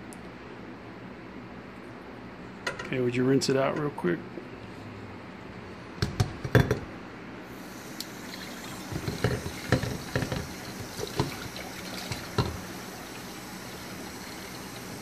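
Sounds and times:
tap water running into sink: 7.8s - 15.0s
container clattering against sink: 8.9s - 12.6s.

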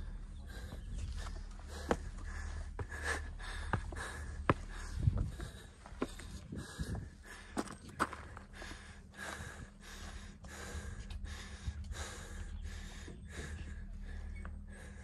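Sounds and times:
heavy rapid breathing: 0.0s - 15.0s.

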